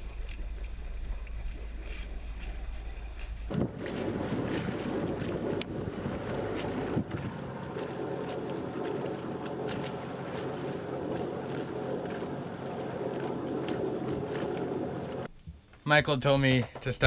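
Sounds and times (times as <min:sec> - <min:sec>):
steady low drone: 0:00.0 - 0:15.3
water washing along boat hull: 0:00.0 - 0:15.3
wind buffeting microphone: 0:00.0 - 0:15.3.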